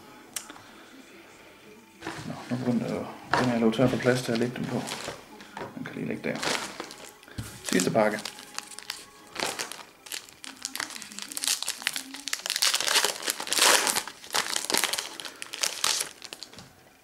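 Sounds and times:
foil wrapper crinkling: 2.0s - 5.2s, 6.2s - 16.6s.

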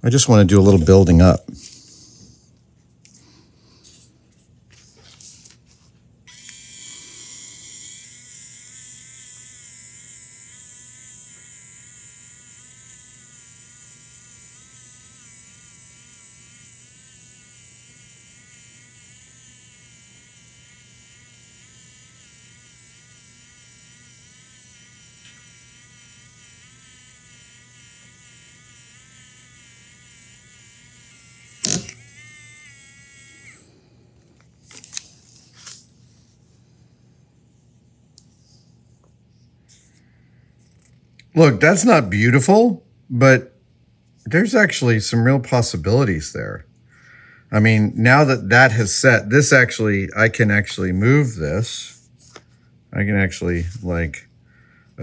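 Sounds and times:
small motor whining: 6.3s - 33.7s.

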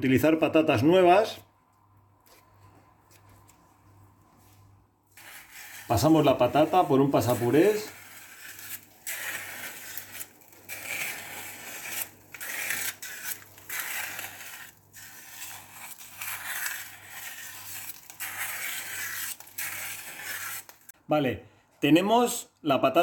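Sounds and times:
food mill blade scraping and grinding: 5.1s - 21.0s.

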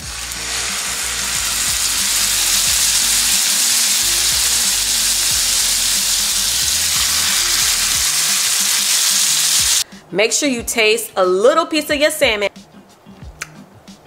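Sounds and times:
fish sizzling in a pan: 0.0s - 9.8s.

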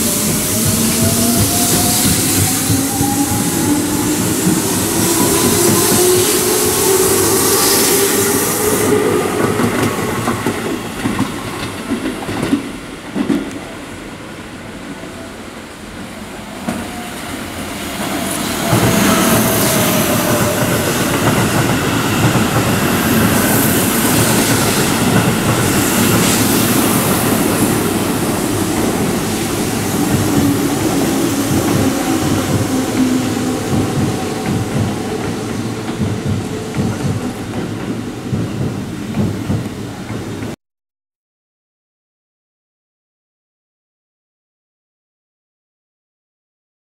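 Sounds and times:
train wheel clatter: 0.0s - 13.7s, 18.0s - 40.6s
train wheel noise: 0.0s - 15.2s, 15.8s - 40.6s.

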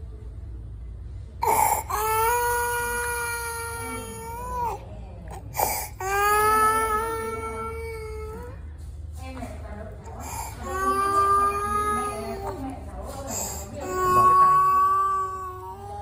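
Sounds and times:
infant crying: 1.4s - 4.8s, 13.3s - 16.0s.

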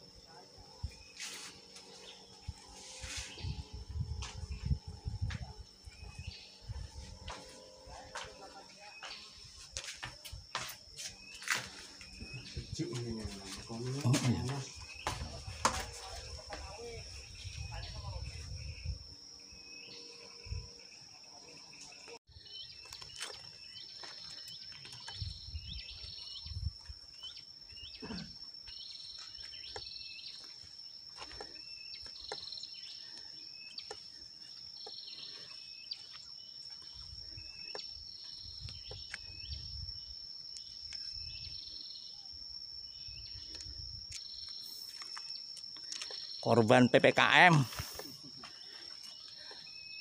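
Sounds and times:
insects droning: 0.0s - 50.0s.

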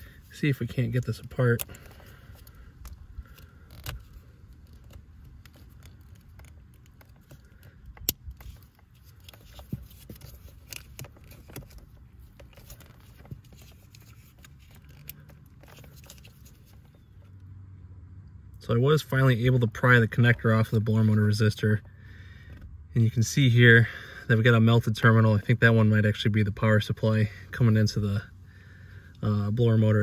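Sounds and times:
pick scraping plastic connector: 0.0s - 17.4s
sharp plastic snaps: 1.5s - 16.9s.

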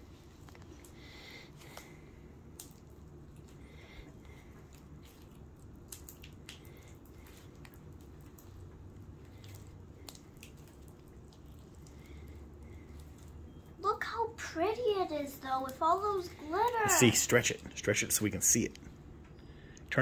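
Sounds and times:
slime squishing: 0.0s - 19.0s
low steady hum: 0.0s - 20.0s.

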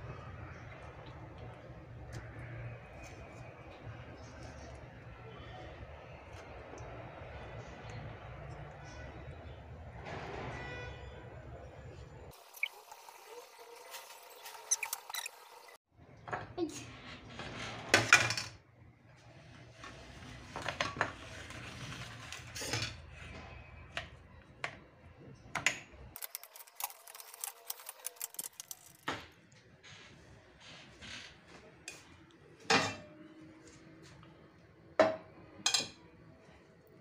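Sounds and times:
utensils scraping strainer and bowl: 26.2s - 29.0s.

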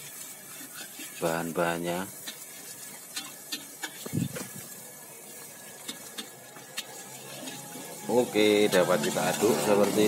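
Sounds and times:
egg sizzling in oil: 0.0s - 10.0s
oil ticks and pops: 2.2s - 4.7s, 5.8s - 7.0s.

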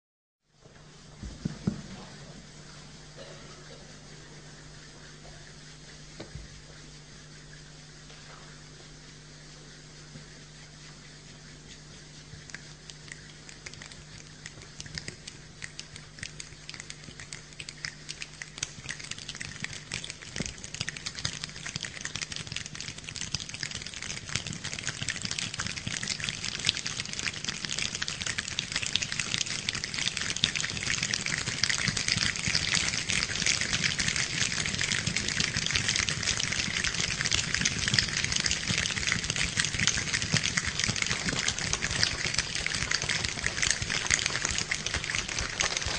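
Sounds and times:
finger snaps imitating rain: 12.4s - 26.9s.

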